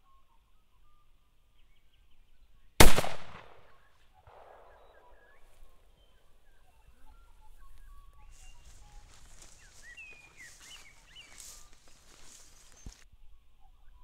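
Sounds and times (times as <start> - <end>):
shotgun blast: 2.8 - 3.7
small birds chirping: 4.3 - 13.0.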